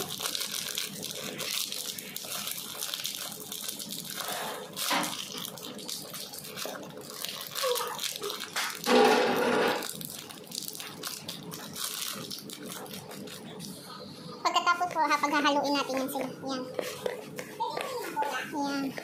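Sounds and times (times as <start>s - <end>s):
plastic bag crackling: 0.0s - 13.8s.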